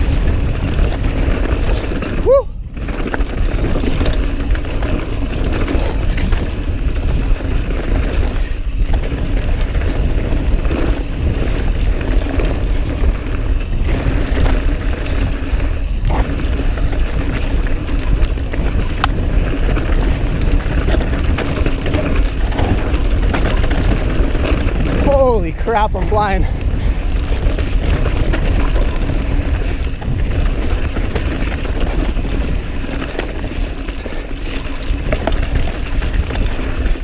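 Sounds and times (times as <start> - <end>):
bike rattling over ground: 0.0 - 37.0
bike tyre noise on dirt: 0.0 - 37.0
wind rushing over microphone: 0.0 - 37.0.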